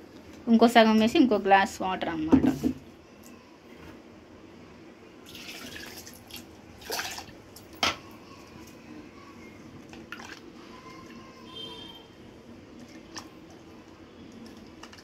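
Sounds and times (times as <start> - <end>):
water splashing and dripping: 5.3 - 7.8.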